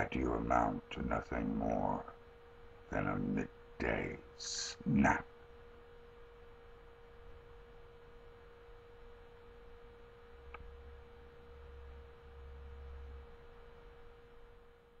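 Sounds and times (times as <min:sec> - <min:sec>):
faint electrical whine: 0:00.0 - 0:15.0.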